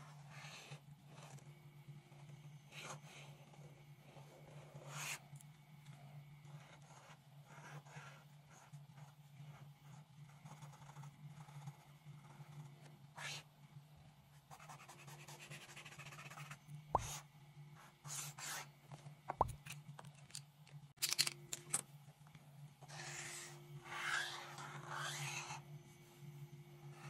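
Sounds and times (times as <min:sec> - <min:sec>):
steady low hum: 0:00.0 - 0:27.0
marker scratching on paper: 0:14.5 - 0:17.2, 0:17.8 - 0:18.7, 0:22.9 - 0:25.6.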